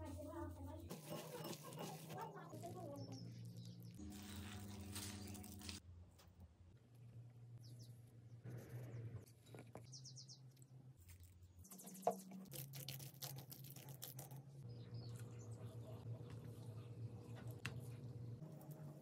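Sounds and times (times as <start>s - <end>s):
birds chirping: 9.8s - 10.5s
steady low hum: 14.4s - 19.0s.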